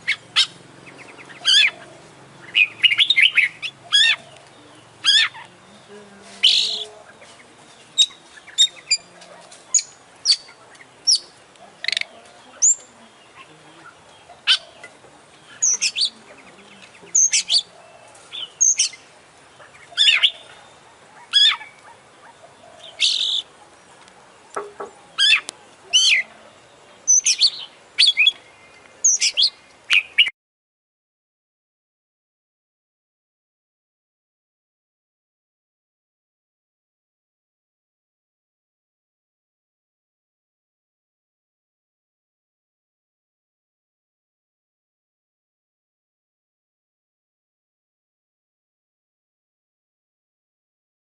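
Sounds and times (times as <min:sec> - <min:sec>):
magpie-robin singing: 0:00.0 - 0:30.3.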